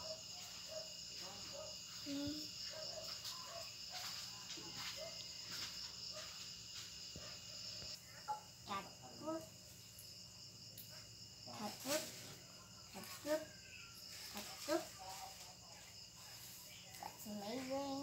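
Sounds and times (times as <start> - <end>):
crickets trilling: 0.0 - 18.0.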